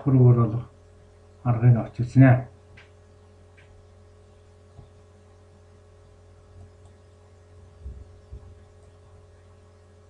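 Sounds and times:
electrical mains hum: 0.0s - 10.0s
faint low thumps: 7.7s - 9.2s.

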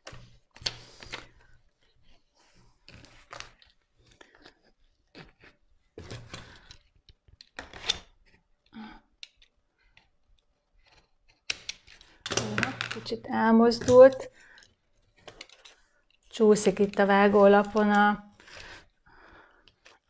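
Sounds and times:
vinyl film crinkling and rustling: 1.9s - 6.6s.

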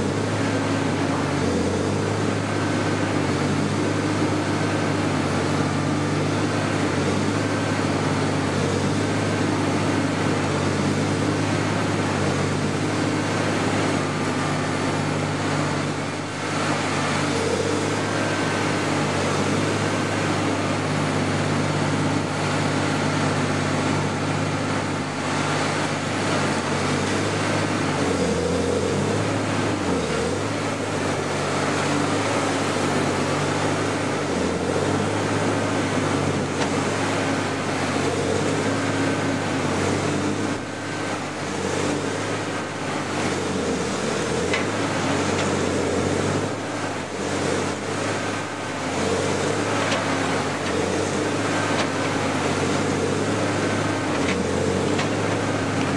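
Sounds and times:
low drone of machine drive: 0.0s - 55.9s
shredder grinding and crunching: 0.0s - 55.9s.

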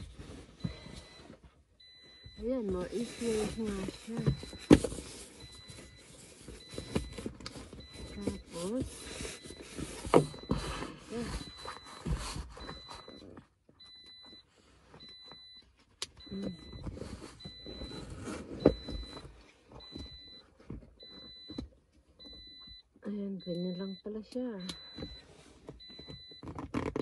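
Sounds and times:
car warning chime beeping: 0.0s - 27.0s
seat cover rustling and rubbing: 2.3s - 13.3s.

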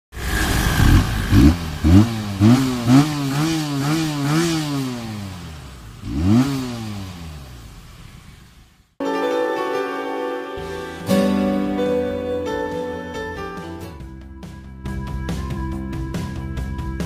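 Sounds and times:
motorcycle engine revving: 0.1s - 9.0s.

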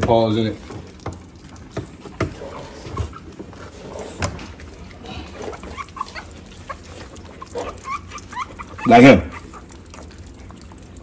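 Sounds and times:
puppy squeaks: 5.5s - 9.7s.

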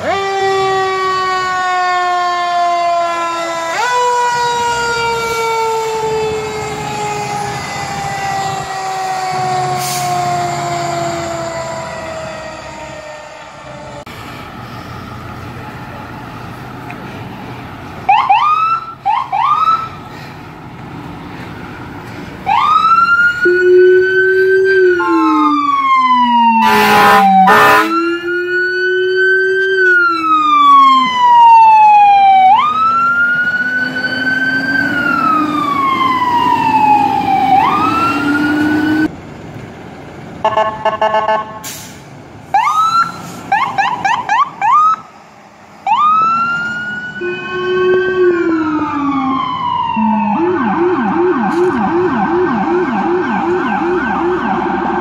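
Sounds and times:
ambulance siren: 0.0s - 16.5s, 18.0s - 20.2s, 22.4s - 39.1s, 42.5s - 45.2s, 45.8s - 55.0s
air horn blasts: 24.9s - 25.6s, 26.6s - 28.0s.

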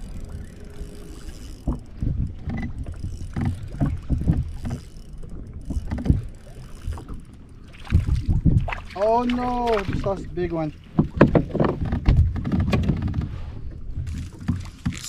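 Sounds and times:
water slapping against kayak hull: 5.7s - 13.4s, 14.0s - 15.0s.

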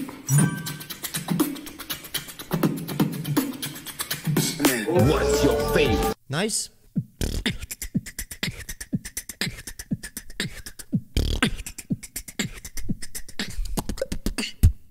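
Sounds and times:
beatboxing: 0.6s - 6.2s, 6.9s - 14.9s.

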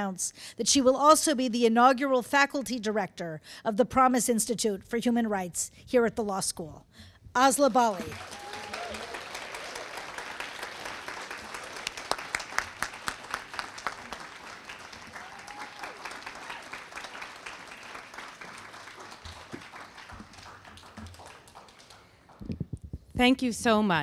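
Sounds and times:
audience applauding: 7.9s - 22.5s
sharp individual claps: 8.0s - 22.7s.

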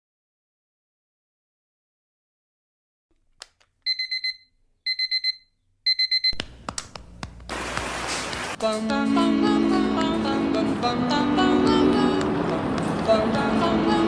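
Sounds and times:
alarm clock beeping: 3.9s - 6.4s
rain hissing: 7.5s - 8.6s.

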